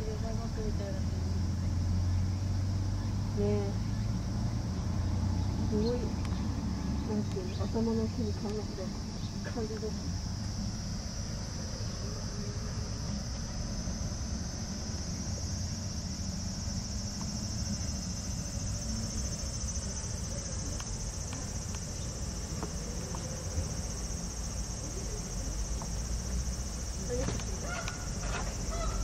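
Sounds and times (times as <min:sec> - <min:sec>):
high-pitched insect drone: 0:00.0 - 0:29.0
low background rumble: 0:00.0 - 0:29.0.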